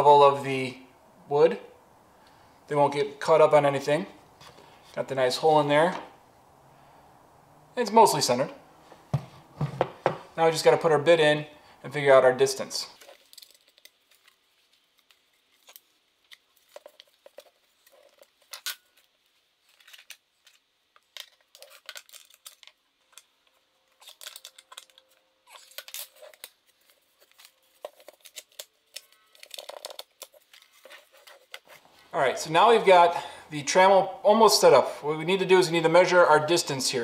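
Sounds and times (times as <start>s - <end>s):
wooden handling knocks: 9.1s - 10.3s.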